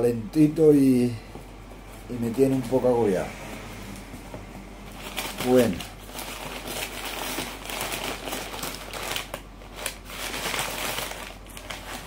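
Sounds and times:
packing paper crinkling: 4.9 - 12.0.

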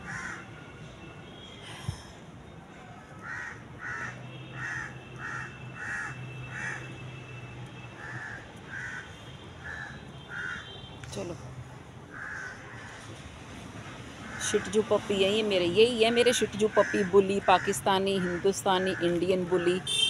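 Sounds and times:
crow cawing: 0.0 - 0.4, 3.2 - 6.9, 8.0 - 10.8, 12.1 - 13.0.

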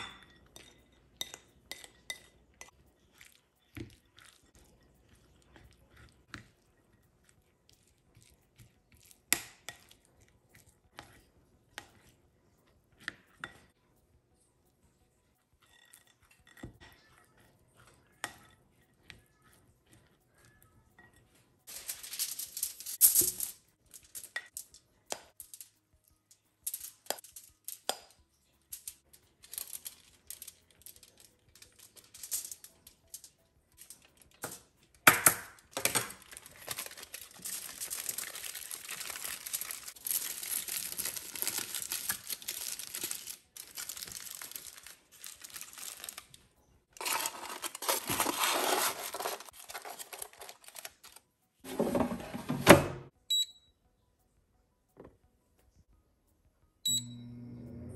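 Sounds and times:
aluminium foil crinkling: 21.6 - 25.6, 28.8 - 51.3.

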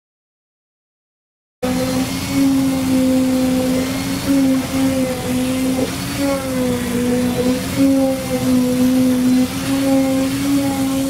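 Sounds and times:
concrete vibrator motor whining: 1.6 - 11.0.

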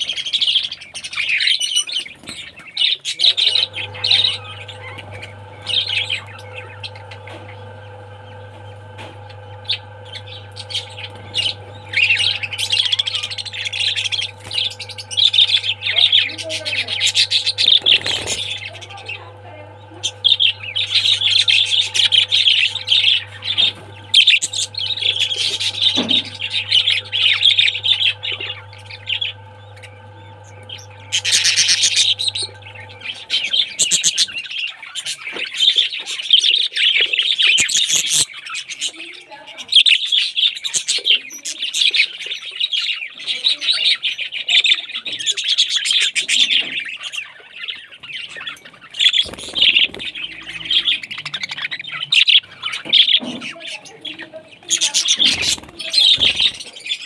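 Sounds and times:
budgerigars chattering: 0.0 - 57.0
faint steady hum: 3.3 - 34.5, 48.1 - 57.0.

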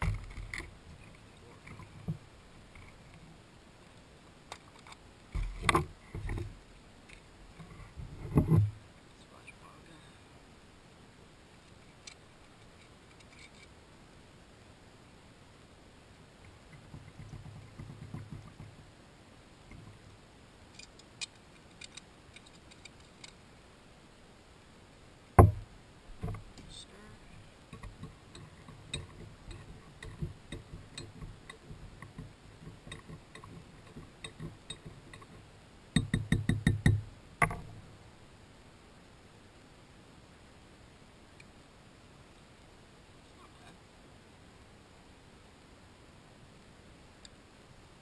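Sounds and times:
faint low murmur: 0.0 - 36.0, 36.8 - 48.0
clicks and knocks: 27.7 - 35.4, 36.0 - 37.8.

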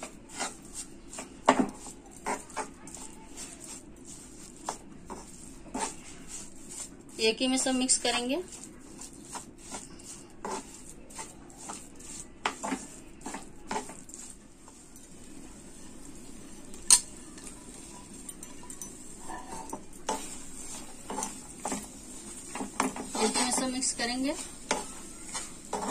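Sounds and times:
metal spoon scraping frying pan: 0.0 - 14.8, 17.8 - 25.9.

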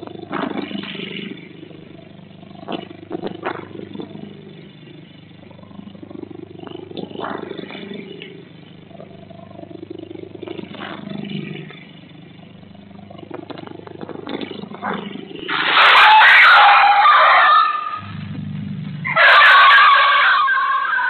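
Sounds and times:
low steady microphone hum: 0.0 - 15.8, 17.8 - 19.3
dog yelping and screaming: 15.7 - 18.0.

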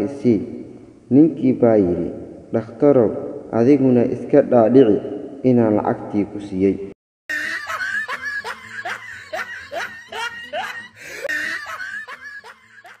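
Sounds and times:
canned laughter: 7.3 - 13.0.

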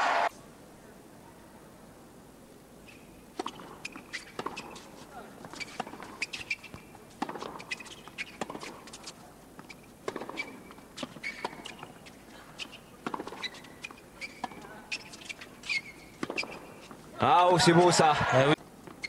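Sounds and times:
shoes squeaking on court: 2.8 - 17.1, 18.6 - 19.0
racket striking tennis ball: 3.3 - 17.0
ball bouncing: 3.4 - 4.8, 5.4 - 9.0, 9.6 - 17.0.

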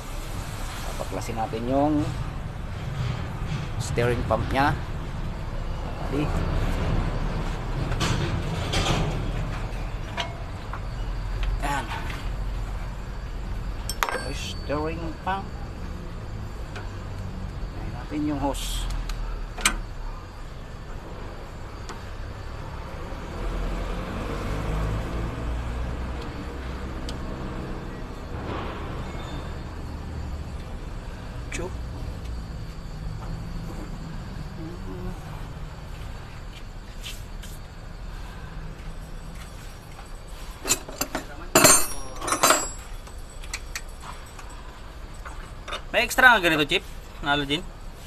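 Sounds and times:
metal hand tools clinking: 13.9 - 14.7, 40.6 - 44.5.

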